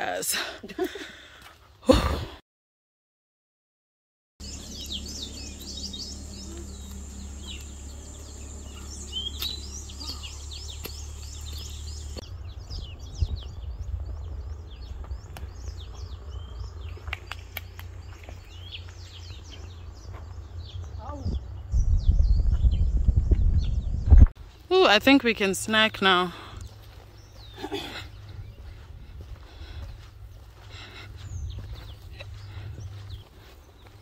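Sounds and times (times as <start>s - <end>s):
steady low rumble: 4.4s - 24.6s
small birds chirping: 4.4s - 34.0s.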